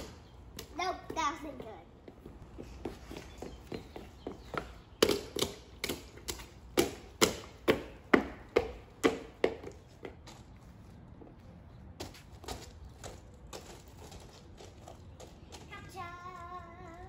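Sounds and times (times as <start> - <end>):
rubber boots slapping on wet stone: 4.6 - 9.8.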